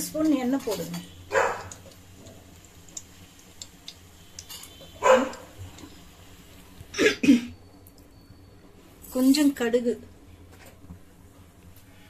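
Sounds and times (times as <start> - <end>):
dog barking: 1.3 - 1.8, 5.0 - 5.5.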